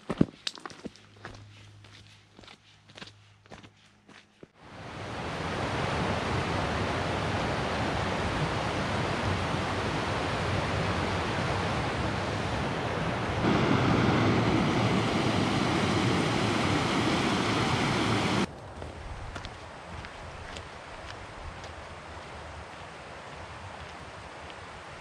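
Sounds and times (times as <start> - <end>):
rushing air and water: 4.6 - 18.5.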